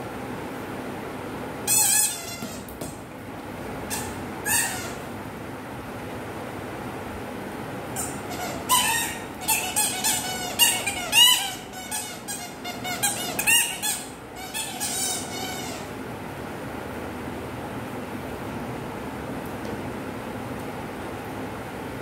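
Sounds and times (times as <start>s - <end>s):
squeaky dog toy squeaking: 1.6s - 2.8s, 3.9s - 5.1s, 8.0s - 15.9s.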